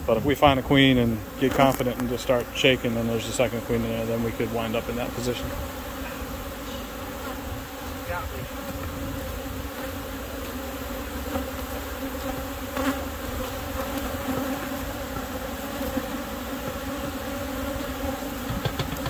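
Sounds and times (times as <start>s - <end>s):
bees buzzing: 0.0s - 19.0s
brief knock: 18.4s - 19.0s.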